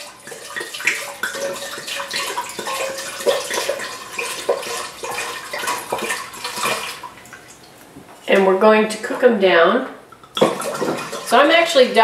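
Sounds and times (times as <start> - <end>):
wine pouring into a metal saucepan: 0.0 - 7.6, 10.2 - 11.6.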